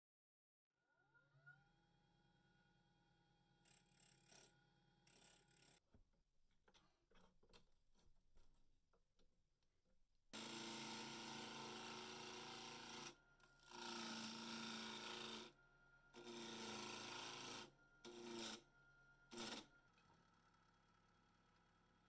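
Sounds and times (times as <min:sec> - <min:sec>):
lathe tool scraping wood: 0:13.7 - 0:15.5, 0:16.2 - 0:18.6, 0:19.3 - 0:19.7.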